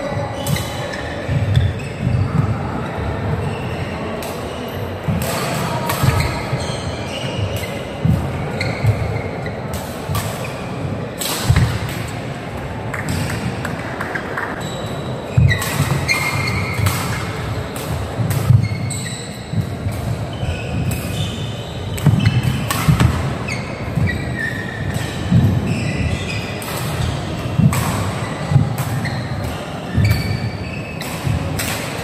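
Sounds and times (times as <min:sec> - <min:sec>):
shoe squeaks: 0:00.0 - 0:09.7, 0:14.5 - 0:17.7, 0:18.4 - 0:31.5
racket striking shuttlecock: 0:15.4 - 0:21.3, 0:21.9 - 0:32.0.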